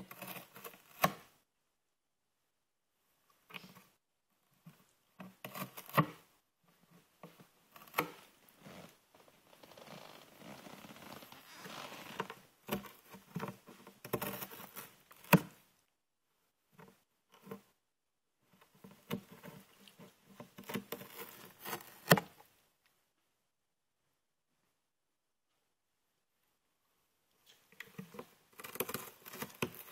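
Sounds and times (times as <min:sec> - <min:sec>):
cat ripping cardboard: 0:20.6 - 0:22.3, 0:28.6 - 0:29.9.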